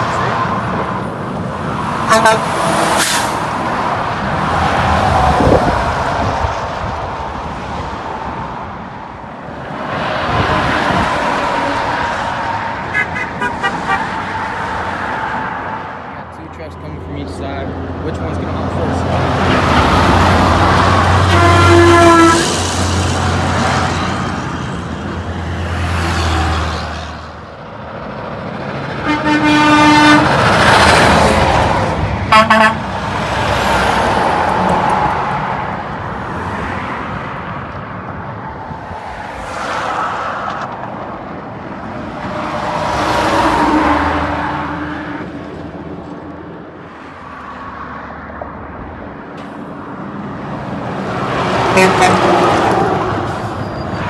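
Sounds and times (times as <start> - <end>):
trucks passing at speed: 0.0 - 54.0
truck horn blasts: 2.1 - 2.6, 12.9 - 14.1, 21.2 - 22.6, 29.0 - 30.4, 32.3 - 33.0, 51.7 - 52.4.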